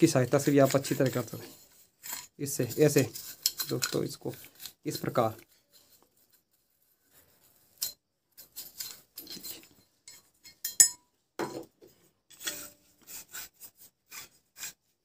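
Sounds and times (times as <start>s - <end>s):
toothbrush scrubbing metal: 0.0s - 10.9s, 12.3s - 15.0s
light metallic clinks: 7.8s - 11.1s.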